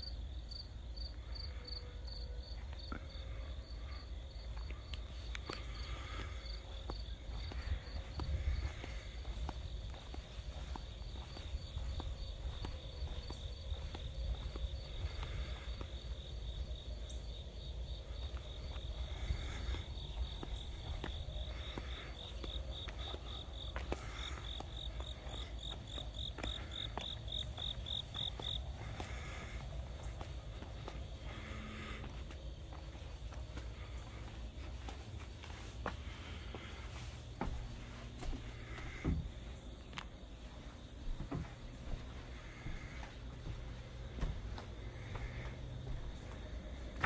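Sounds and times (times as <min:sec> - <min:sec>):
insects chirping: 0:00.0 - 0:47.0
light footsteps on pavement: 0:02.4 - 0:47.0.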